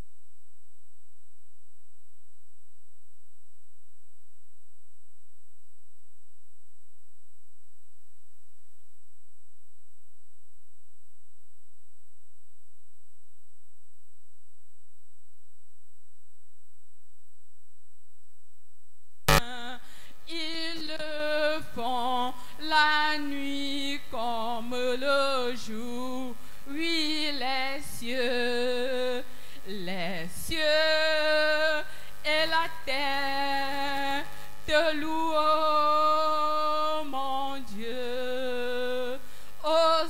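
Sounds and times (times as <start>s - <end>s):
woman singing a hymn: 19.3s - 40.0s.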